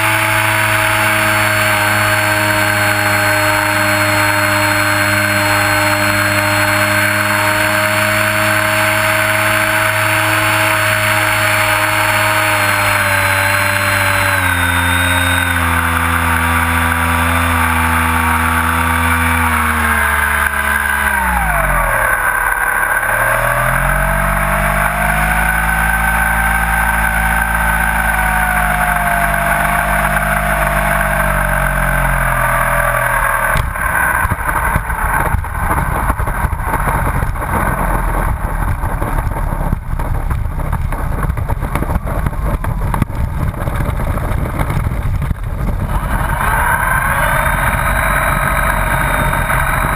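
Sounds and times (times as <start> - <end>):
model airplane motor droning: 0.0 - 37.9, 41.7 - 49.9
landing gear rattling on asphalt: 32.4 - 46.0.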